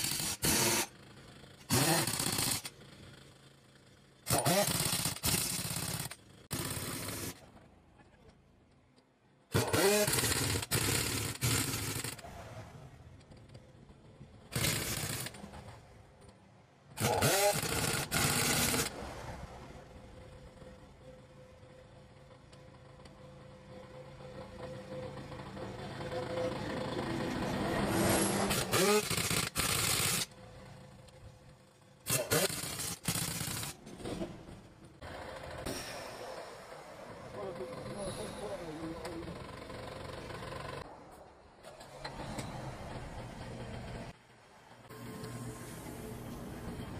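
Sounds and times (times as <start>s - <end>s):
pneumatic impact wrench hammering: 0.0s - 1.0s, 1.6s - 2.8s, 4.2s - 7.4s, 9.5s - 12.2s, 14.5s - 15.5s, 17.0s - 18.9s, 28.0s - 30.3s, 32.0s - 34.3s.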